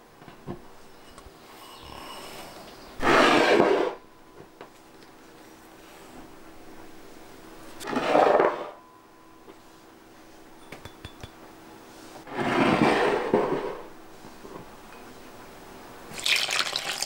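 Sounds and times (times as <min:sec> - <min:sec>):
light glass clinks: 0:10.6 - 0:11.4.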